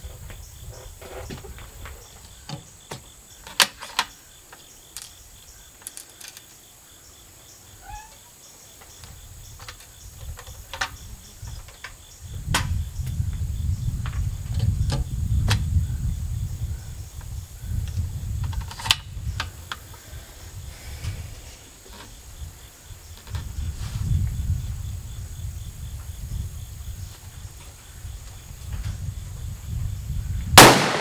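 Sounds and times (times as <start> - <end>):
crickets trilling: 0.0 - 31.0
clicks and knocks of rifle handling: 1.2 - 6.5, 18.4 - 20.0.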